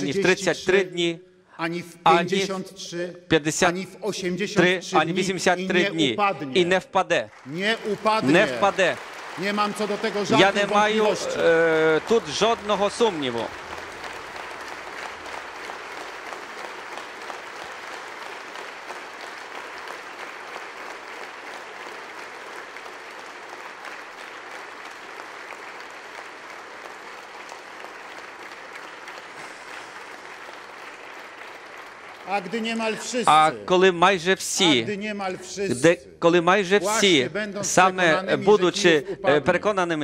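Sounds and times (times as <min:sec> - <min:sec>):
audience applauding: 0:07.1 - 0:33.7.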